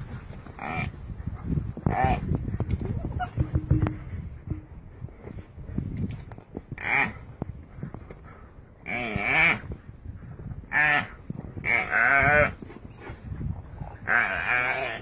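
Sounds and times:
antelope bleating in distress: 10.7s - 12.6s.

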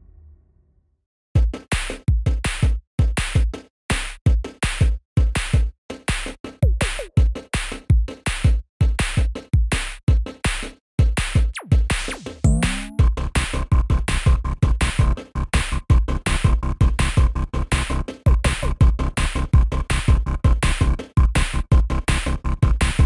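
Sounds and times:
electronic music with drum machine: 4.3s - 10.5s, 11.4s - 14.4s.

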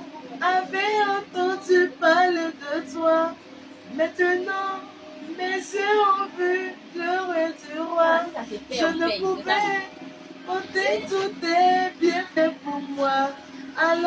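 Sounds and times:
woman singing slow song: 0.2s - 14.0s.

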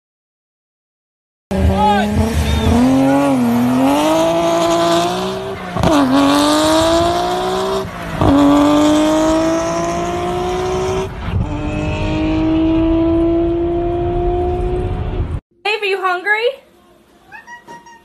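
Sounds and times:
engine accelerating through gears: 1.5s - 15.4s.

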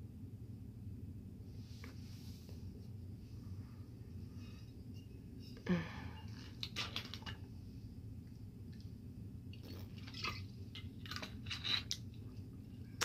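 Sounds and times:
bottle clicks and rustles: 9.6s - 12.4s.

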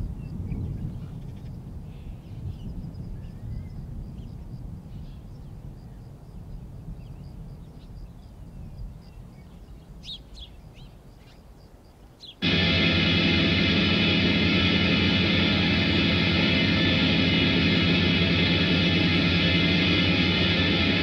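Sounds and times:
low steady rumble: 12.4s - 21.0s.

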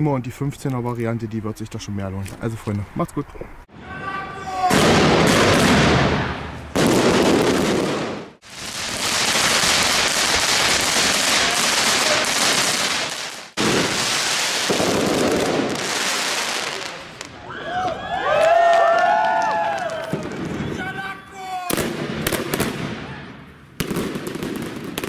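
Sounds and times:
fireworks crackling and banging: 4.5s - 17.4s, 19.6s - 21.0s, 21.7s - 25.0s.

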